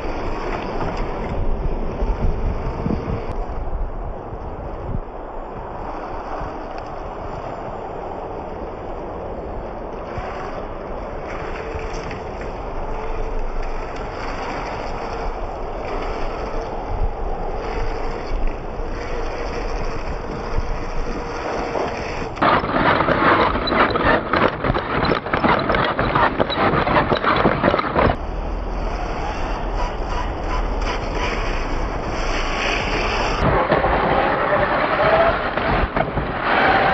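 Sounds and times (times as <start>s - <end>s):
tyres on dirt: 0.0s - 36.9s
close-up crunching and rattling: 10.1s - 28.3s
electric motor whine: 27.4s - 33.5s.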